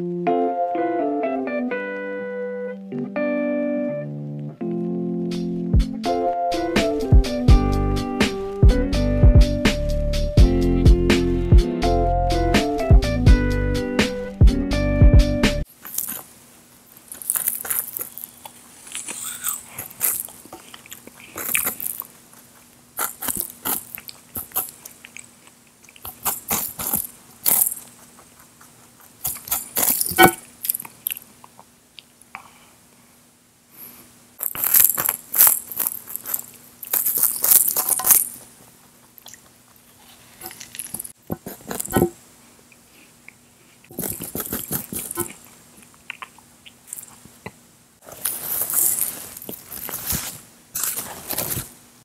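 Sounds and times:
apple crunching: 15.7s - 32.1s, 34.4s - 42.2s, 43.2s - 51.7s.

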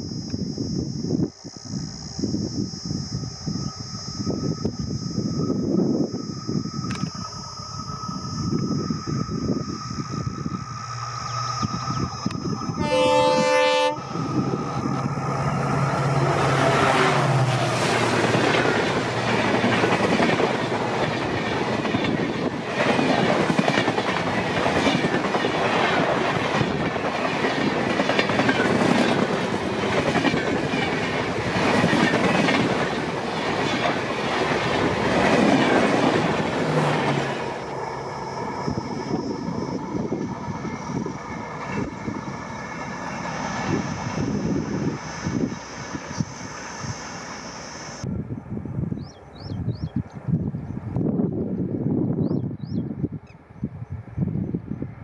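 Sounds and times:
locomotive engine passing: 5.0s - 48.1s
locomotive horn: 12.8s - 14.4s
train wheels clattering on rail joints: 14.9s - 37.8s.

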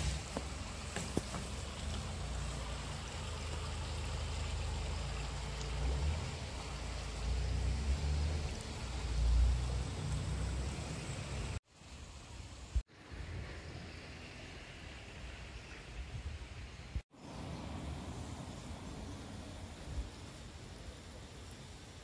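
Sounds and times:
stream flowing over stones: 0.0s - 12.8s.

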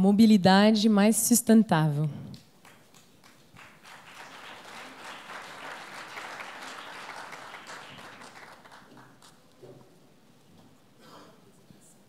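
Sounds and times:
audience applauding: 2.6s - 9.5s.

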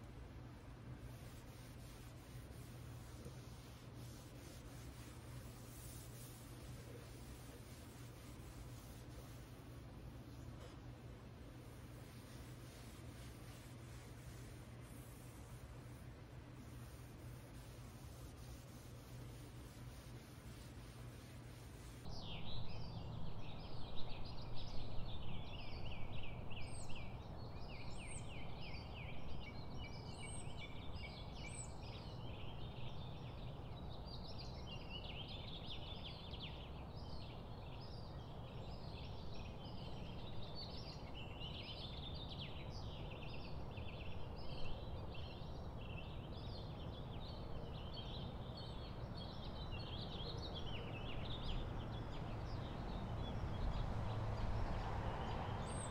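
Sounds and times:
steady low hum: 0.0s - 23.9s
small birds chirping: 0.8s - 55.9s.

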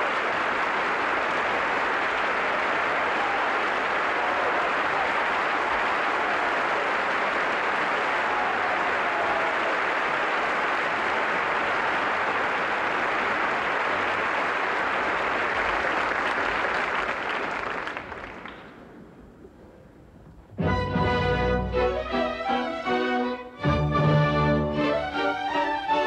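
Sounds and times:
audience applauding: 0.0s - 19.3s
orchestra playing: 20.6s - 26.0s.

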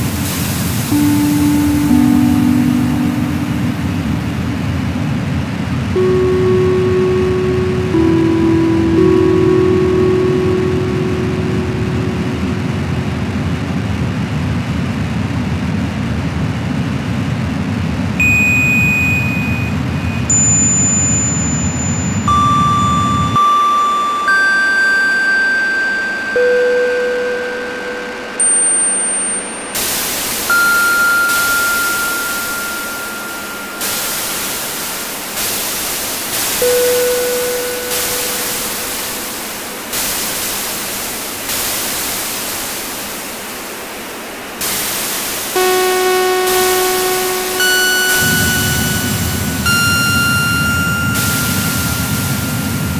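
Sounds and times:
pure sine tones: 0.0s - 14.7s, 18.2s - 43.7s, 44.6s - 52.9s
low filtered noise: 0.0s - 52.9s
full-range hiss: 29.8s - 52.9s.

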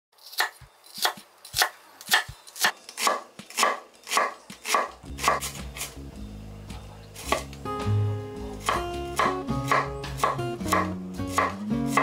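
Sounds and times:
knife chopping onion on board: 0.3s - 5.9s, 7.2s - 7.5s, 8.6s - 12.0s.

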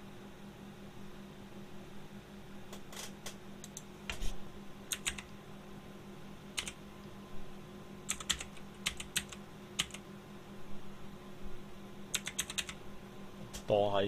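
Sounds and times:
faint steady hum: 0.0s - 14.0s
computer keyboard typing: 4.9s - 5.3s, 6.6s - 6.8s, 8.1s - 10.0s, 12.1s - 12.8s.

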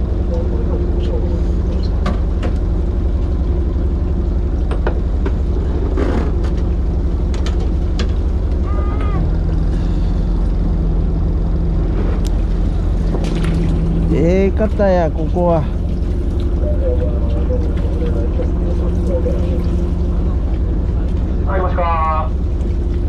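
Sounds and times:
boat engine droning: 0.0s - 23.0s.

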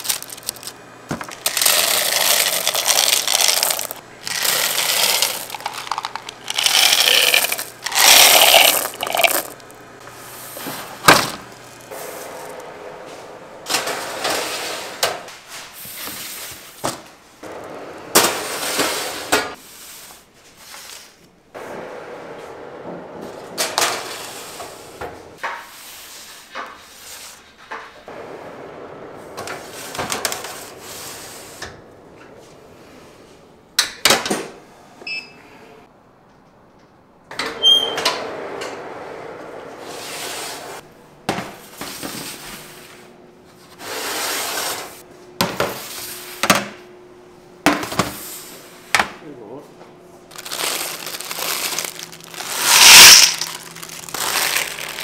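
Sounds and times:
rustling handling noise: 0.0s - 9.7s, 50.3s - 55.0s.

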